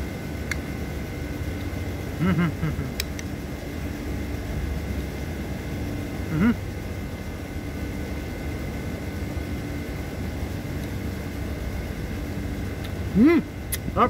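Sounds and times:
faint constant hum: 0:00.0 - 0:14.0
low outdoor rumble: 0:00.0 - 0:14.0
man humming: 0:02.2 - 0:03.0, 0:06.2 - 0:06.7, 0:13.1 - 0:14.0.

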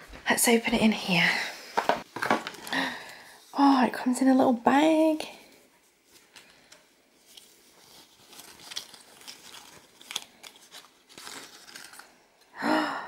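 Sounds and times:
cloth pouch rustling and scraping: 0:07.2 - 0:12.0.

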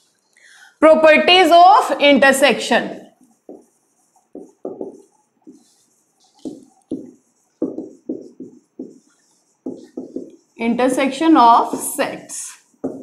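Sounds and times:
marker pen writing on whiteboard: 0:03.0 - 0:13.0.

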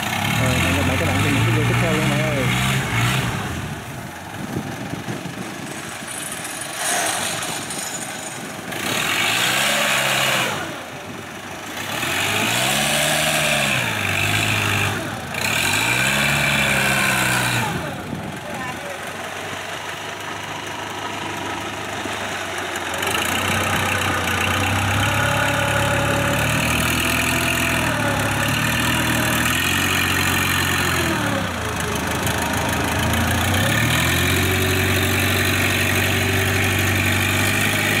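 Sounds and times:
diesel engine running: 0:00.0 - 0:38.0.

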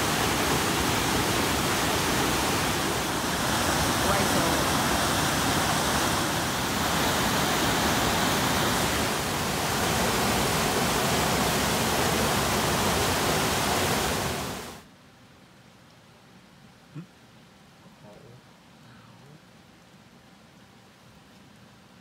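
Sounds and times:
river rushing over boulders: 0:00.0 - 0:14.9.

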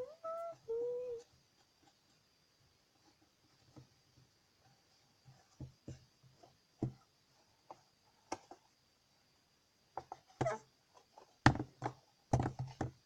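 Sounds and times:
objects knocking and rustling: 0:03.0 - 0:08.8, 0:09.9 - 0:13.0.

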